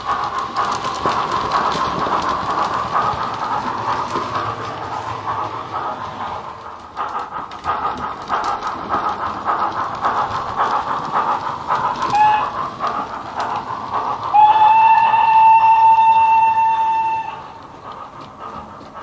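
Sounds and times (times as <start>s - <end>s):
steam locomotive chuffing: 0.0s - 19.0s
steam whistle: 12.0s - 12.6s, 14.3s - 17.6s.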